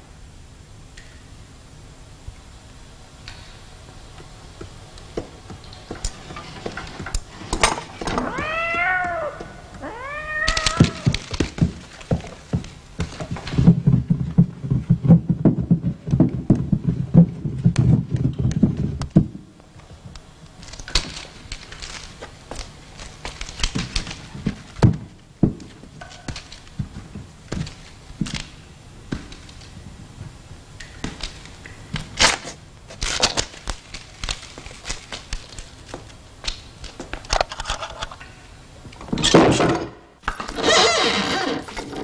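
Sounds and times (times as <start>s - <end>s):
cat meowing: 8.0s - 11.3s
rapid low knocking and thumping: 11.2s - 19.5s.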